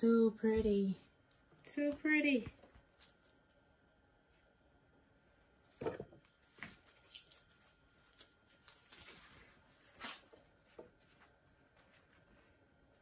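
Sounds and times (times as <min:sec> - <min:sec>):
fabric rustling and swishing: 0:09.1 - 0:10.4.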